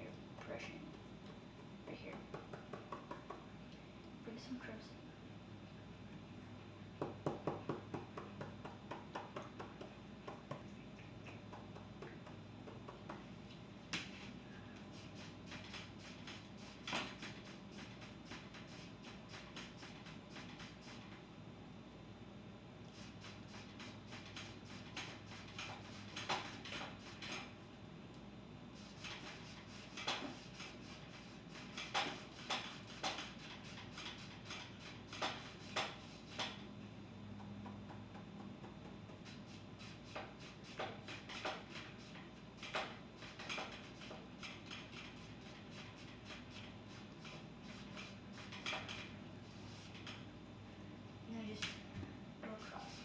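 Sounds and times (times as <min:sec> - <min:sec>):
paint brush scrubbing canvas: 0:14.1 - 0:21.2, 0:22.9 - 0:27.4, 0:28.8 - 0:36.6, 0:39.2 - 0:44.2, 0:44.8 - 0:50.2, 0:52.5 - 0:53.0.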